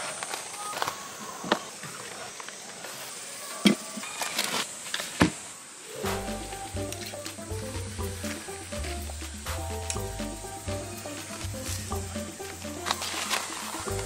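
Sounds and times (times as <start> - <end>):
background music: 6.0 - 14.0.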